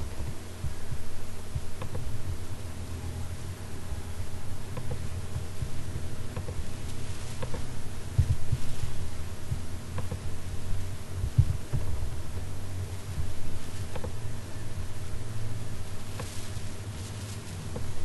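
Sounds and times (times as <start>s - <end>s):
steady low hum: 0.0s - 18.0s
faint clicks: 1.8s - 2.1s, 4.7s - 8.9s, 9.9s - 10.3s
soft thumps: 4.7s - 10.4s, 11.2s - 12.4s, 16.0s - 18.0s.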